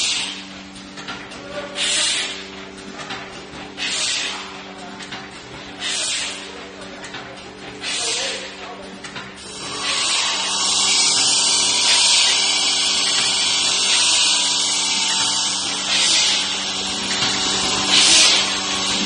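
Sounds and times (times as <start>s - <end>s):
machine mechanical hum: 0.0s - 19.0s
pneumatic air hiss bursts: 1.8s - 2.4s, 3.8s - 4.4s, 5.8s - 6.4s, 9.5s - 19.0s.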